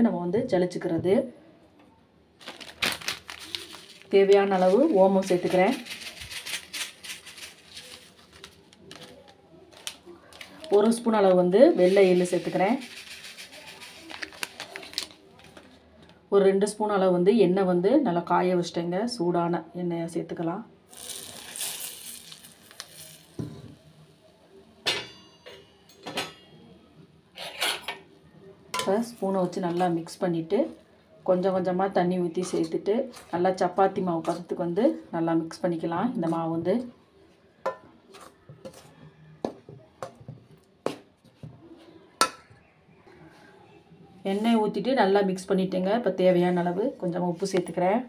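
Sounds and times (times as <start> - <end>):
hot oil sizzling on flour: 11.7 - 14.2, 20.9 - 24.3
spoon scraping steel bowl: 11.8 - 14.1, 37.7 - 38.9.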